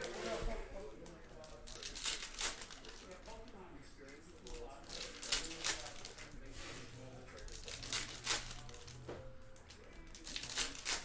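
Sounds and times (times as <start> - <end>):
foil wrapper tearing and crinkling: 0.0 - 11.0.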